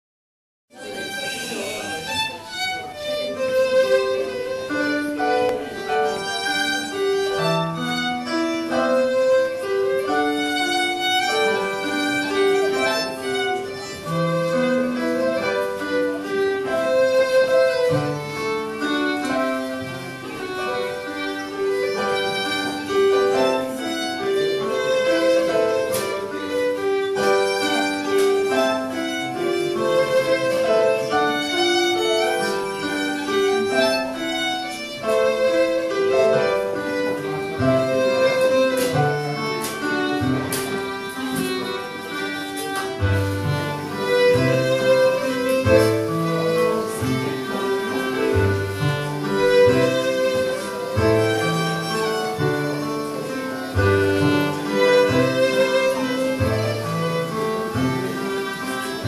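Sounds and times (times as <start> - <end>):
fiddle tune: 0.7 - 59.0.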